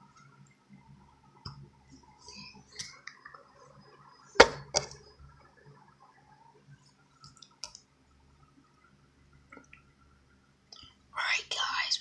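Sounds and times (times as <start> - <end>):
faint clicks: 7.2 - 7.9.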